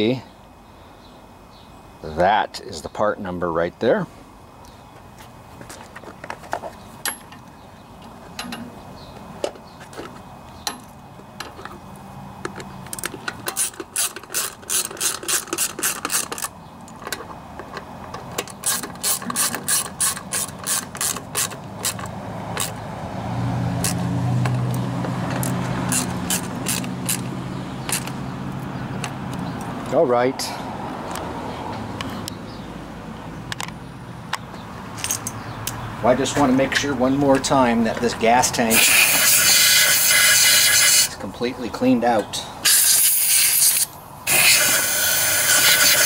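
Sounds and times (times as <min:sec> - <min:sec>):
socket ratchet clicking: 0:12.5 - 0:22.8, 0:23.8 - 0:28.2.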